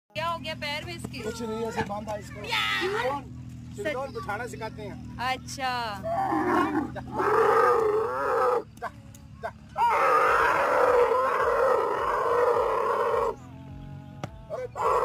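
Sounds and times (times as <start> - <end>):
camel long wavering call: 6.0 - 8.6, 9.8 - 13.5, 14.5 - 15.0
camel grunting: 6.0 - 8.7, 9.8 - 13.9, 14.5 - 15.0.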